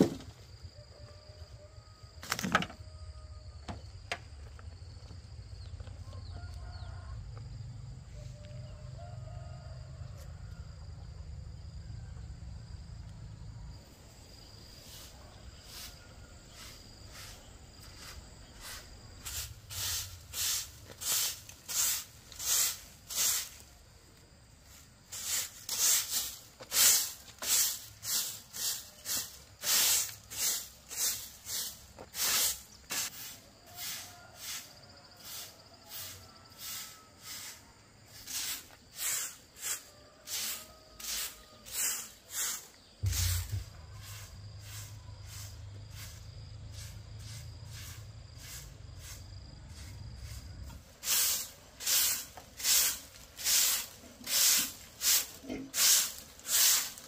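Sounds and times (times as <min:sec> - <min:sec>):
hand tool scraping: 0:25.1 - 0:34.7, 0:35.9 - 0:46.2, 0:49.8 - 0:57.0.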